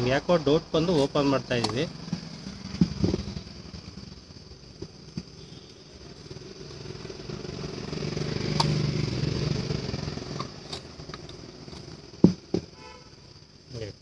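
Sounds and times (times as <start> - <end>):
vehicle engine passing by: 6.2 - 10.4.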